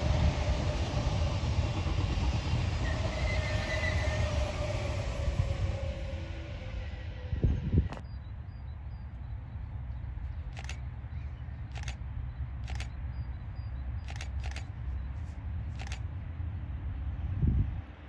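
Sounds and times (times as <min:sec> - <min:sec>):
diesel locomotives rumbling: 0:00.0 - 0:18.0
sharp clicks: 0:10.5 - 0:10.8, 0:11.7 - 0:12.0, 0:12.6 - 0:13.0, 0:14.0 - 0:14.7, 0:15.7 - 0:16.0.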